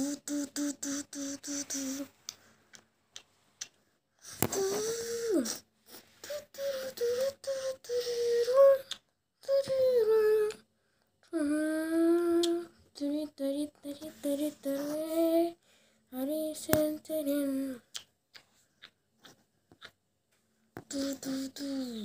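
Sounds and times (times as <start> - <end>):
high voice singing: 0.0 - 2.1, 4.3 - 5.6, 6.2 - 10.6, 20.8 - 22.0.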